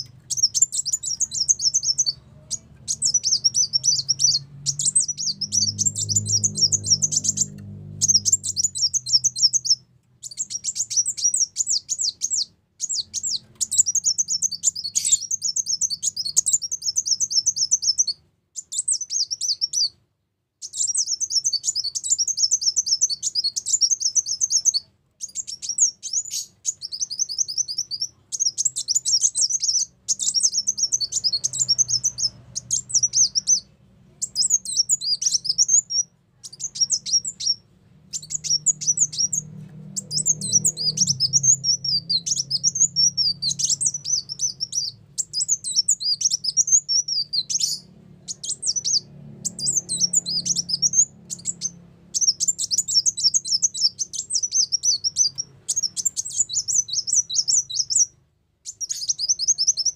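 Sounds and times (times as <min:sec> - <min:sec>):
faint low hum: 0:00.0 - 0:18.7
bird twittering chirps: 0:00.0 - 0:20.0, 0:20.6 - 0:59.9.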